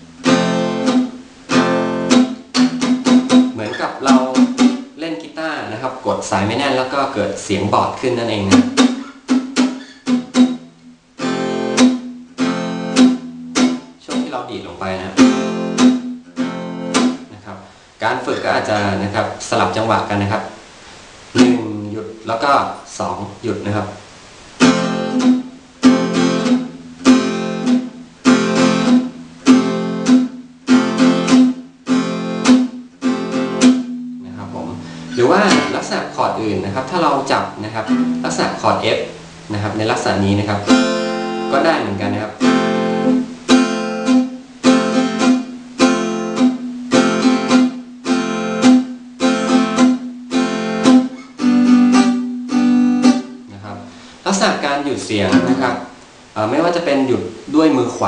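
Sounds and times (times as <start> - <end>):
acoustic guitar chord strummed: 0.0 - 20.6, 21.3 - 56.0.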